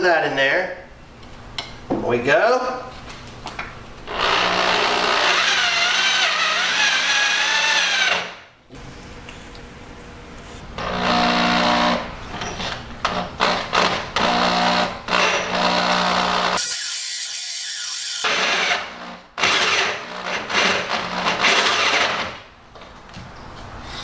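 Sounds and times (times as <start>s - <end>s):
electric drill motor whining: 4.1s - 8.2s, 14.2s - 18.3s
hole saw grinding metal: 4.1s - 8.3s, 14.2s - 18.7s.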